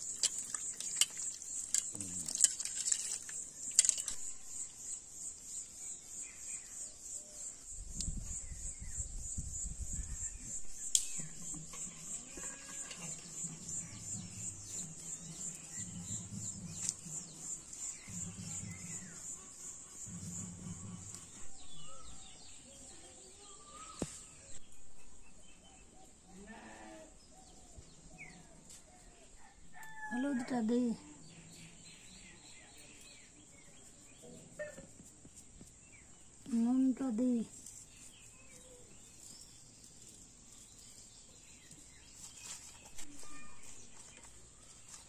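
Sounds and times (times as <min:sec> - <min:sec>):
crickets droning: 0:00.0 - 0:22.0
livestock bleating: 0:26.4 - 0:27.1.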